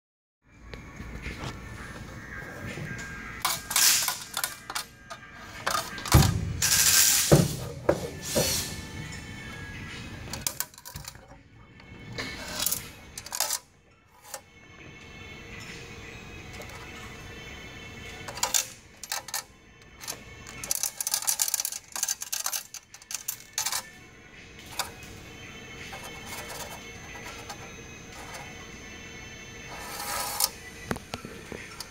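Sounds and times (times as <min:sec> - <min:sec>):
metal case scraping: 0:25.9 - 0:28.5.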